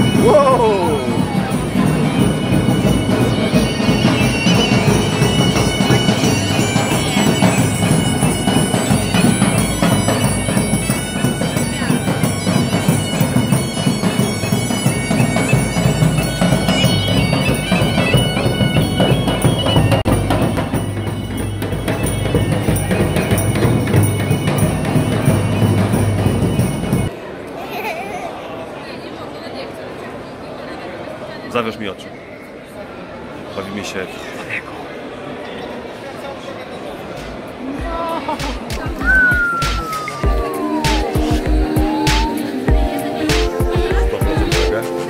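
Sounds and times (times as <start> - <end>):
bagpipes with drones: 0.0 - 27.1
drums: 0.0 - 27.1, 37.2 - 45.0.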